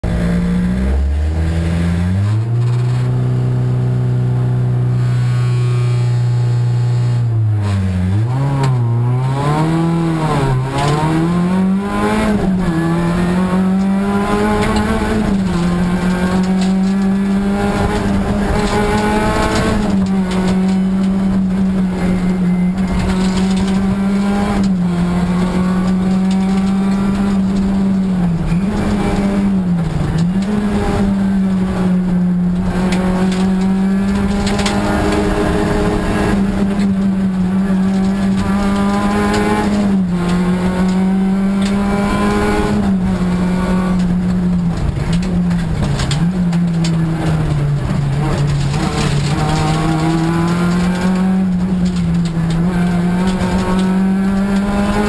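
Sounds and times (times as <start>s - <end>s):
rally car engine revving: 0.0s - 55.0s.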